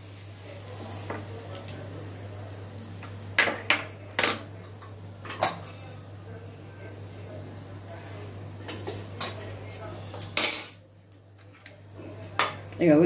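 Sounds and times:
spices sizzling in hot oil: 0.0s - 5.7s.

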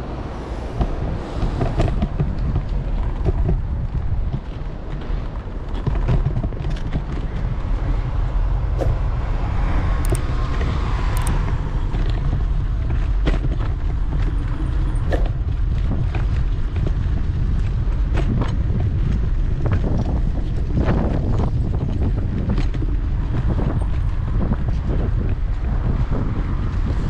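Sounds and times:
wind buffeting microphone: 0.0s - 27.0s
scooter knocks and rattles: 0.8s - 9.2s, 10.0s - 27.0s.

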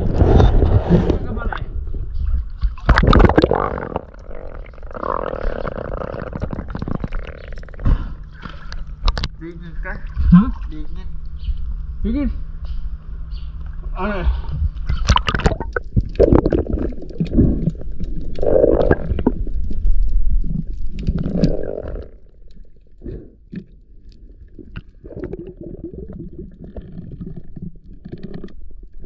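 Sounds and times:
underwater rushing and bubbling: 0.0s - 9.3s, 14.7s - 29.0s
low rumble: 0.0s - 27.9s
small underwater clicks: 14.8s - 29.0s.

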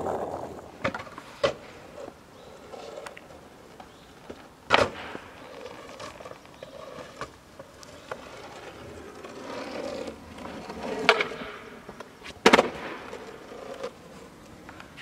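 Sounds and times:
skateboard wheels rolling on asphalt: 0.0s - 15.0s
board clacking on pavement: 0.1s - 2.1s, 2.8s - 15.0s.

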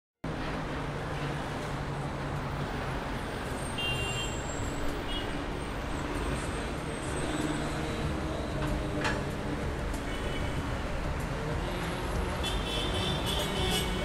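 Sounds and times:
road traffic rumble: 0.2s - 14.0s.

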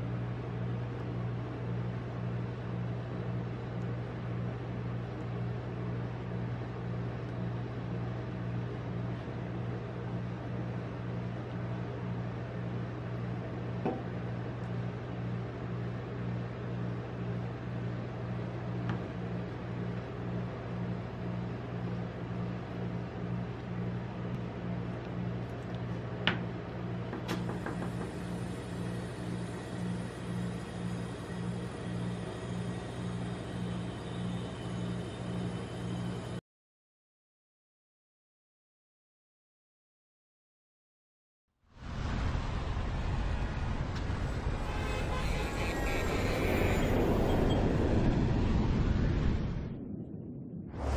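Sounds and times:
refrigeration compressor humming: 0.0s - 36.4s.

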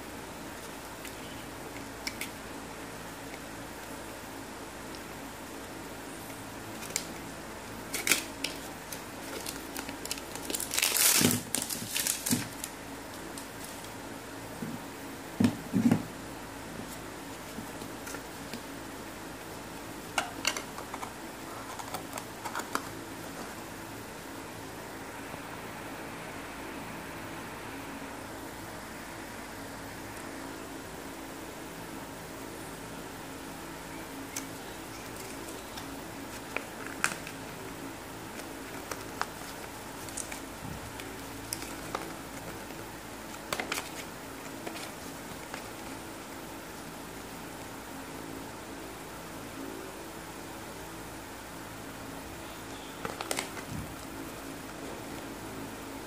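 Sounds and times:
low background hum: 0.0s - 56.0s
paper crinkling and snapping: 6.7s - 14.0s, 34.3s - 37.6s, 38.2s - 46.8s, 53.0s - 55.3s
low hum: 20.7s - 32.9s.

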